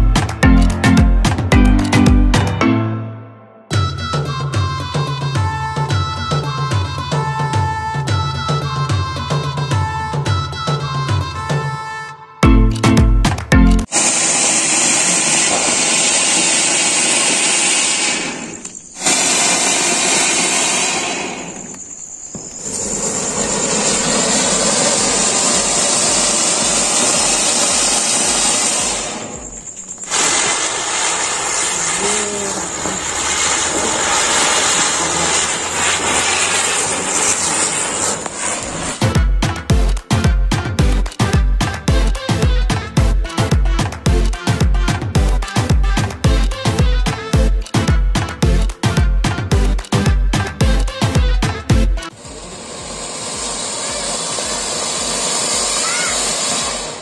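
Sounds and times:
fountain fireworks hissing: 13.8 - 39.1, 52.1 - 57.0.

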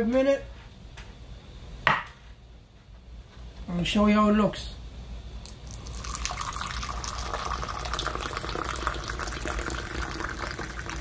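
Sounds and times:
tea pouring into a glass: 5.5 - 11.0.

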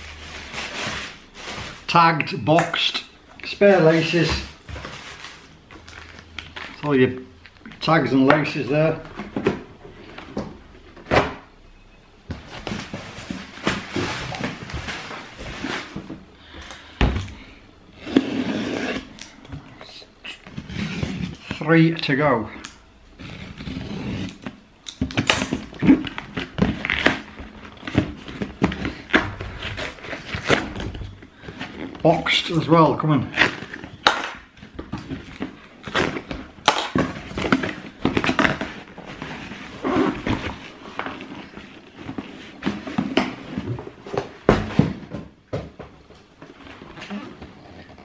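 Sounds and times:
cardboard boxes rustling: 3.7 - 6.9, 12.3 - 17.4, 24.3 - 32.6, 33.4 - 48.0.

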